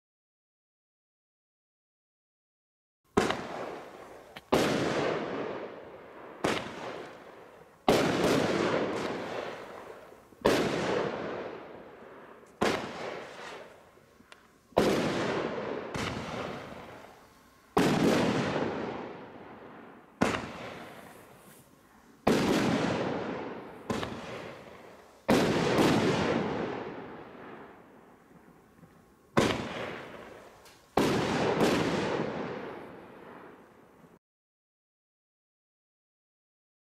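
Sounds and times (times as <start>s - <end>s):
roman candles bursting: 3.2s - 33.7s.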